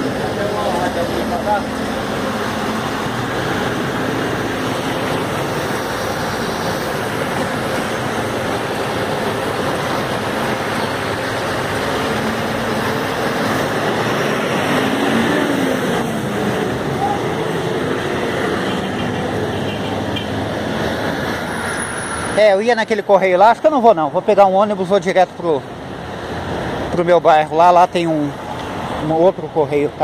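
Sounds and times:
bus engine running: 0:00.0 - 0:22.3
street traffic noise: 0:00.0 - 0:30.0.

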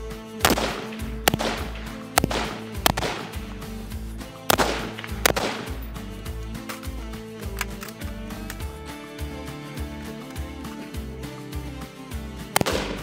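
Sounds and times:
background music: 0:00.0 - 0:13.0
rifle shots with echo: 0:00.4 - 0:06.2, 0:12.5 - 0:13.0.

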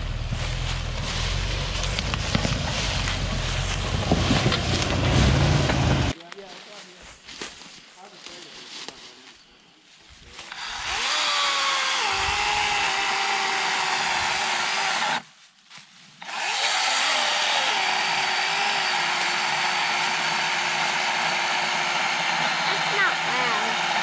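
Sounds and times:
electric chainsaw cutting log: 0:10.5 - 0:15.2, 0:16.2 - 0:24.0.

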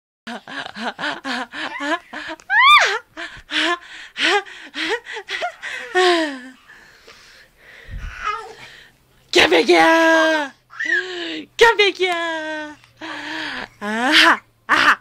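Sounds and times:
baby squealing: 0:10.7 - 0:11.1.

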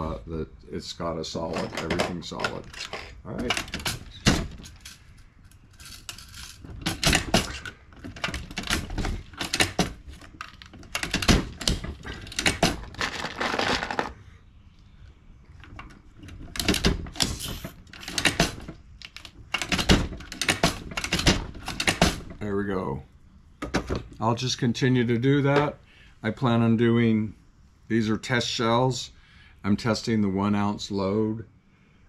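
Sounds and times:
shell hulls handled: 0:12.1 - 0:14.2.

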